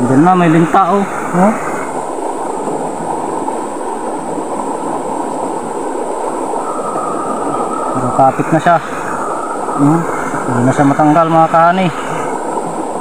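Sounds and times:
stream water over stones: 0.0s - 13.0s.

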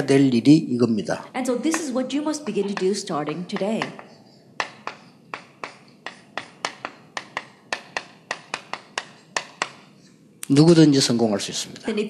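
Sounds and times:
chalk tapping on blackboard: 1.7s - 10.2s.

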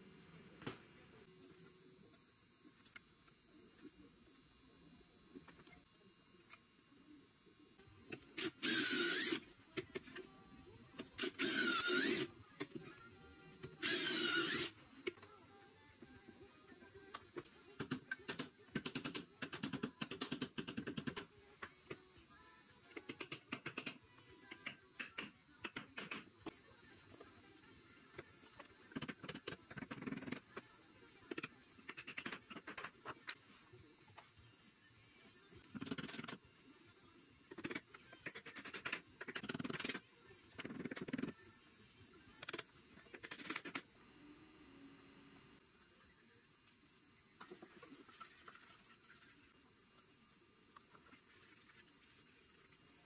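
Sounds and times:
electric drill boring wood: 8.3s - 9.5s, 11.2s - 12.3s, 13.8s - 14.8s.

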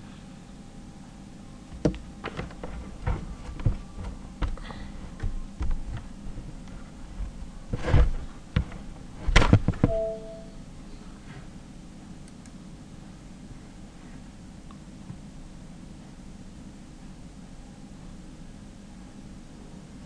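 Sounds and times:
thumps: 1.7s - 10.2s
brief tone: 9.8s - 11.2s.

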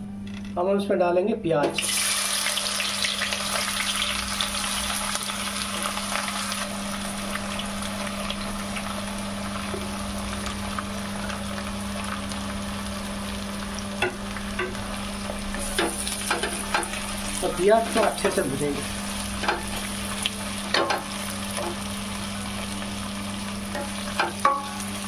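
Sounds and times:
onions sizzling in oil: 1.8s - 25.0s.

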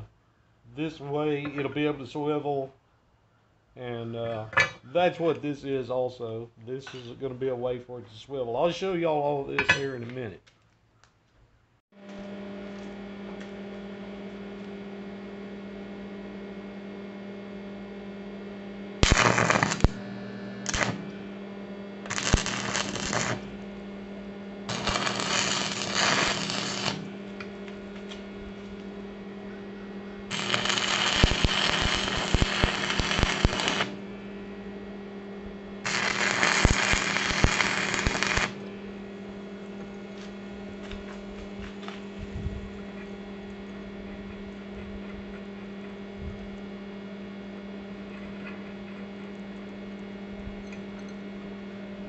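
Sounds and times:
steady electrical hum: 0.0s - 52.0s
welding arc crackling and sizzling: 19.0s - 24.1s, 24.7s - 29.1s, 30.3s - 34.2s, 35.8s - 38.7s.

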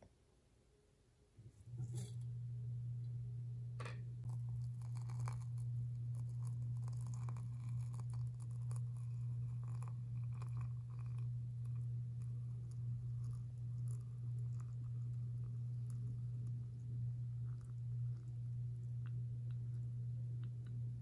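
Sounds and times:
steady low hum: 1.4s - 21.0s
soft ticks and trickling: 4.3s - 16.6s.

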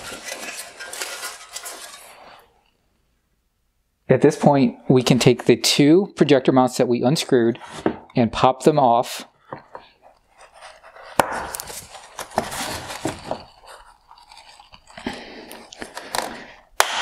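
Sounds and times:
plastic parts scraping and crunching: 0.0s - 2.5s, 9.4s - 16.7s.

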